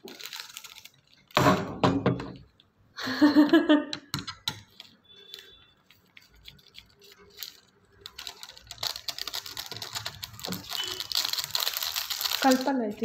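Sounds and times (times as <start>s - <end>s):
plastic sachets crinkling: 0.0s - 1.5s, 4.5s - 13.0s
dense crackle of rapid ticks: 7.4s - 12.7s.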